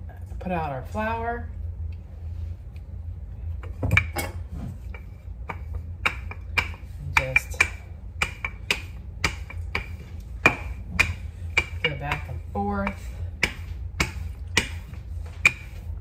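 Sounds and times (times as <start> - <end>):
steady low hum: 0.0 - 16.0
rolling pin clacking on countertop: 4.9 - 15.9.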